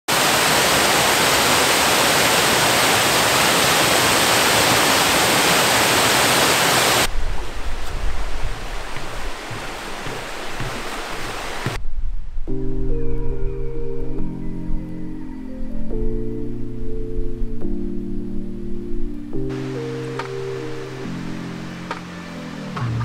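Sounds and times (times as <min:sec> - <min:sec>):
waterfall roaring: 0:00.1 - 0:11.8, 0:19.5 - 0:22.8
dull rush of water: 0:00.1 - 0:12.0, 0:19.5 - 0:22.7
low rumble: 0:11.8 - 0:13.9.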